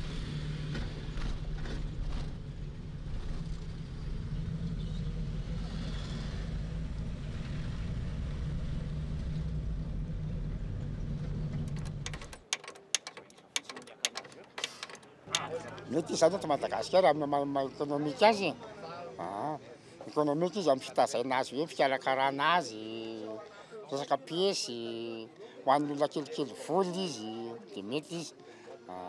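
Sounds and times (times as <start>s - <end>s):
car engine and road noise: 0.0s - 12.9s
sharp clicks and taps: 11.6s - 15.9s.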